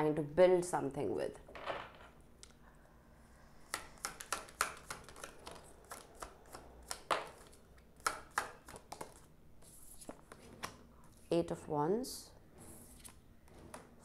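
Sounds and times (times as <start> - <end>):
cards snapping and tapping on table: 3.7 - 9.2.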